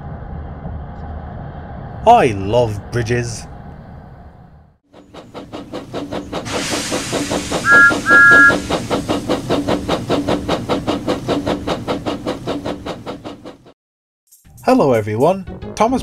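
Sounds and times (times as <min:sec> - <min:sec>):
steam locomotive chuffing: 0:04.9 - 0:13.8
hissing steam: 0:05.1 - 0:13.6
two-note steam whistle: 0:07.6 - 0:08.8.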